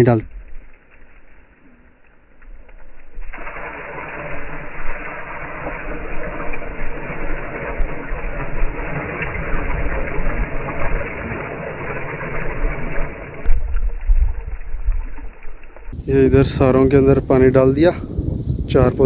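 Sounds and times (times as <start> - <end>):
low rumble: 0.0 - 18.3
water splashing onto soil: 2.0 - 16.0.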